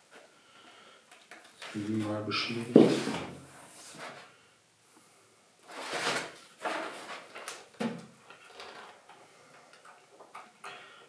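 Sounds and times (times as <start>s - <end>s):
paper and cardboard rustling: 1.2s - 4.3s, 5.6s - 9.1s.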